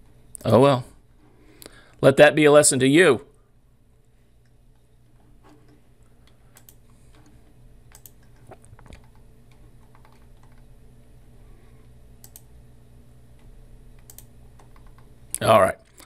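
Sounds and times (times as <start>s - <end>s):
low steady hum: 0.0s - 16.0s
keyboard and mouse clicks: 5.4s - 7.3s, 7.9s - 10.7s, 12.2s - 12.5s, 13.4s - 16.0s.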